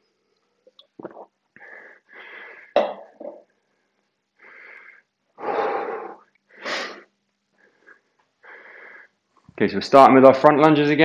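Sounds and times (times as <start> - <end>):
man breathing hard: 1.6 - 2.8, 4.4 - 9.2.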